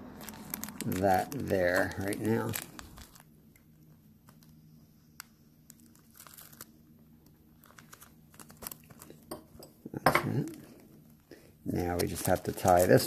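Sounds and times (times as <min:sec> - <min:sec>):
plastic package crinkling: 0:00.0 - 0:09.4, 0:10.3 - 0:13.0
faint low hum: 0:00.0 - 0:13.0.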